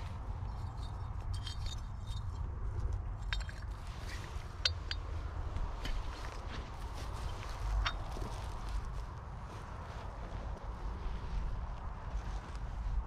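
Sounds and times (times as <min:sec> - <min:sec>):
low steady rumble: 0:00.0 - 0:13.0
broken glass and pottery clinking: 0:00.6 - 0:02.4, 0:03.2 - 0:03.8.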